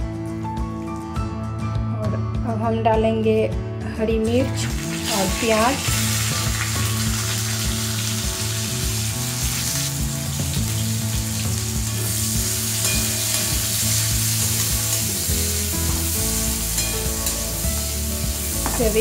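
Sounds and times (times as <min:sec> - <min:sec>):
onions sizzling in hot oil: 0:04.5 - 0:19.0.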